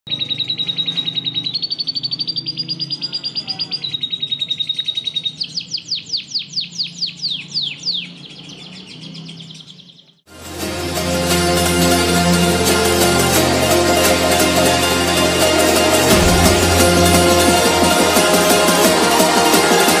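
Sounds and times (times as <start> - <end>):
canary singing: 0.1 - 10.2.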